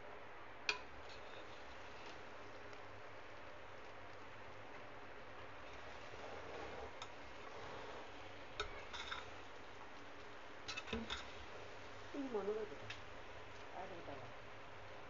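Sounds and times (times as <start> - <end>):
faint steady hiss: 0.0 - 15.0
metal spoon scraping cooking pot: 6.2 - 9.4, 10.7 - 11.4.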